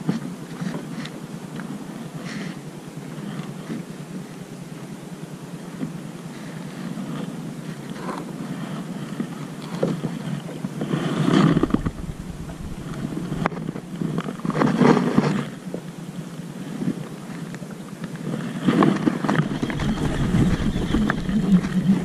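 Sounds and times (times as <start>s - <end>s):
water lapping at hull: 5.6s - 22.0s
wind buffeting microphone: 11.3s - 15.1s, 18.9s - 22.0s.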